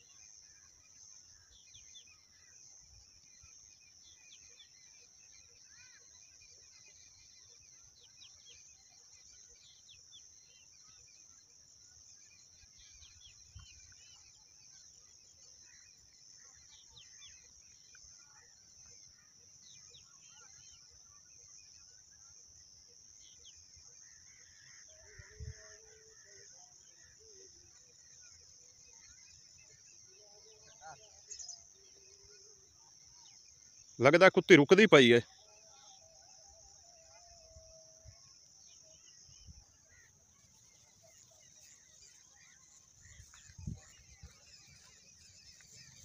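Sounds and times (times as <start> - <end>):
distant birds chirping: 23.1 - 46.0.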